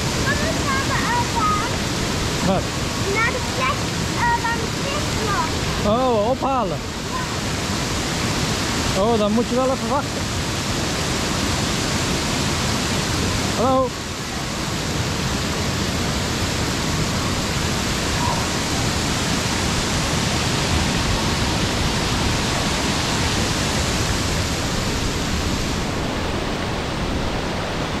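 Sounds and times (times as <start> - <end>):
running water rushing: 0.0 - 28.0.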